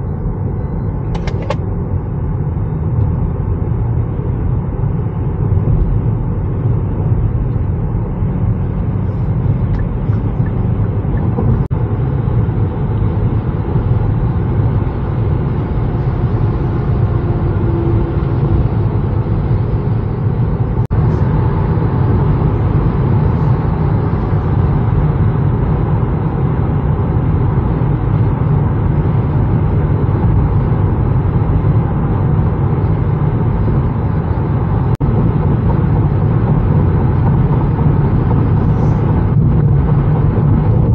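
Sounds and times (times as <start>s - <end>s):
tyre rumble inside car: 33.4s - 40.9s.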